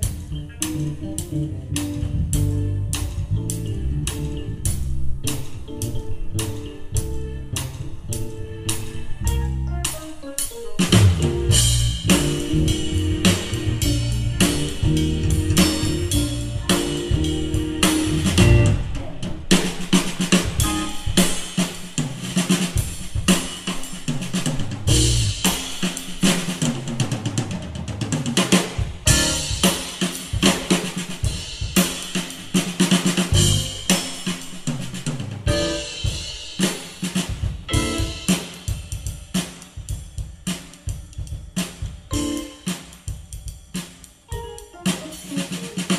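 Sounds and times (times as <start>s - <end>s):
heavy bass line: 0.0s - 10.0s, 10.9s - 19.1s, 24.9s - 25.5s, 33.3s - 34.1s
funk band playing: 0.0s - 45.9s.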